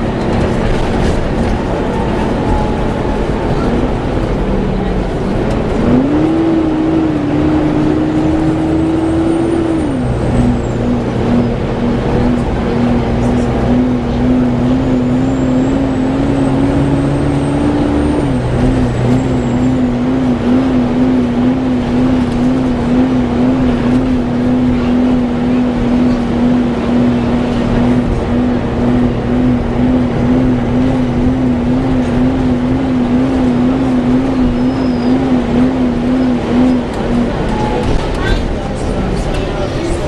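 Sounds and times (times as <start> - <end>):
bus engine and road noise: 0.0 - 40.0
engine cooling fan whine: 0.0 - 40.0.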